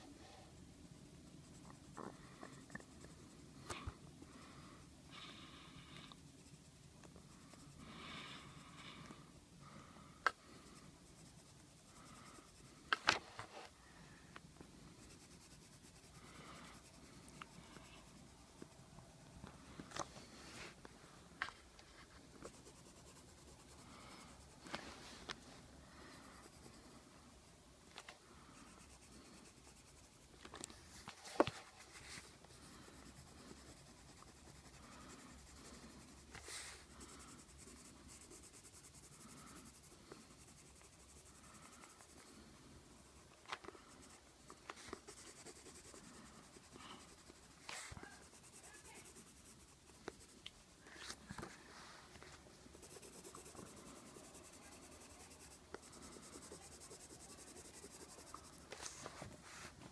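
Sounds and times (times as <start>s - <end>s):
pencil scratching on paper: 0.3s - 9.0s, 10.4s - 13.5s, 14.8s - 18.9s, 21.5s - 25.1s, 25.9s - 27.2s, 28.3s - 59.9s.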